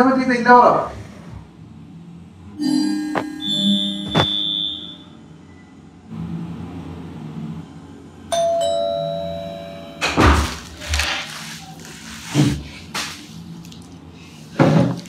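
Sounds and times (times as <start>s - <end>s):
two-note doorbell chime: 2.6s - 5.2s, 8.3s - 10.1s
thumps: 4.0s - 4.5s.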